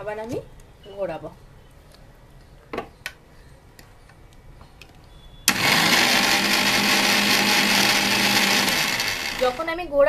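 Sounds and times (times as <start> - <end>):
mixer grinder running: 5.5 - 9.8.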